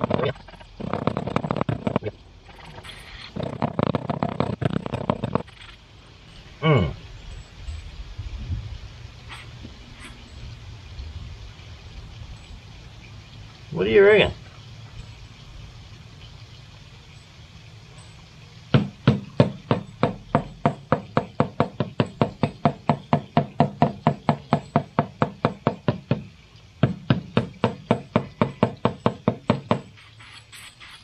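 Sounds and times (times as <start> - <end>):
fast even knocking: 0.0 - 2.2, 3.3 - 5.5, 18.7 - 30.0.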